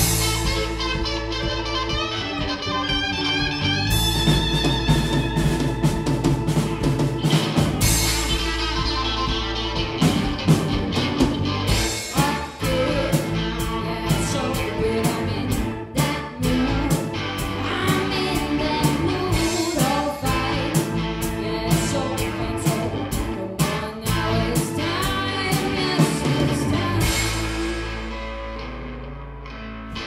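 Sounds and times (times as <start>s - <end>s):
blues band playing: 0.0s - 30.0s
woman singing: 12.1s - 27.4s.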